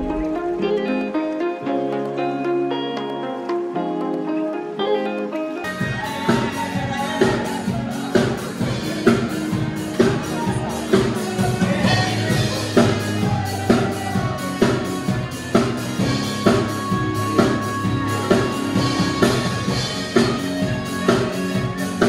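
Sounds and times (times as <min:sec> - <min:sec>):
music with steady drum beat: 0:05.7 - 0:22.0.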